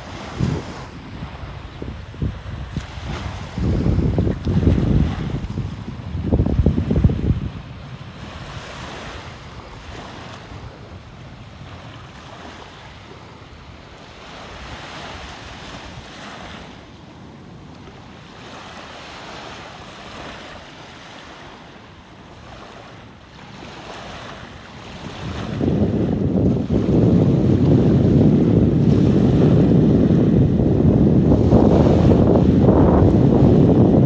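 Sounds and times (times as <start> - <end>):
wind buffeting microphone: 0.0 - 17.7, 23.6 - 34.0
small waves lapping on sand: 0.0 - 34.0.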